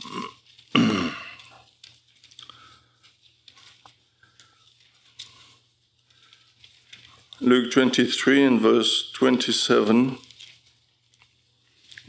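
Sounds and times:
man's short vocal sound: 0:00.0 - 0:01.4
paper pages rustling: 0:01.4 - 0:12.0.

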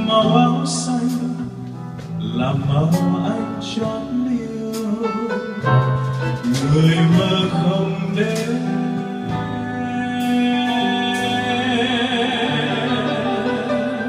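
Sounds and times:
live band playing slow ballad: 0:00.0 - 0:14.0
man singing long notes: 0:06.4 - 0:14.0.

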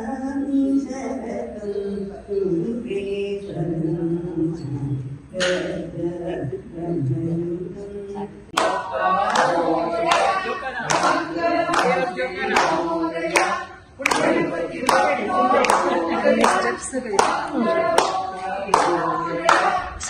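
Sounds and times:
group singing a chant: 0:02.4 - 0:20.0
hands clapping in time: 0:08.6 - 0:20.0.

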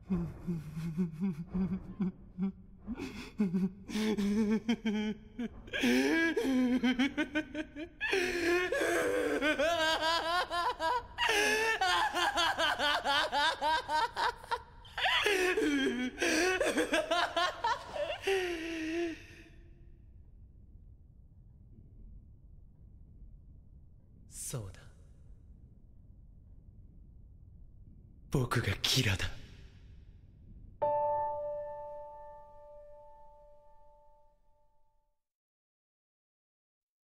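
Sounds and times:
young man laughing: 0:03.4 - 0:08.2, 0:09.2 - 0:19.0.

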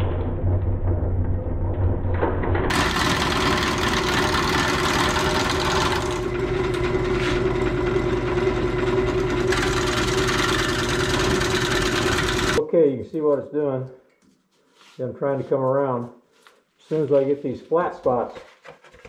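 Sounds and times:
wood lathe humming: 0:02.7 - 0:12.6.

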